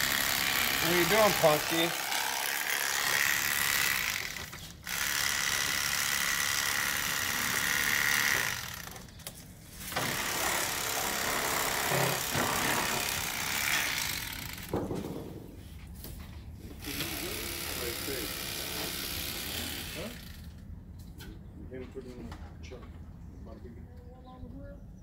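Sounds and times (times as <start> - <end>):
electric fillet knife buzzing: 0.0 - 9.0, 16.8 - 20.3.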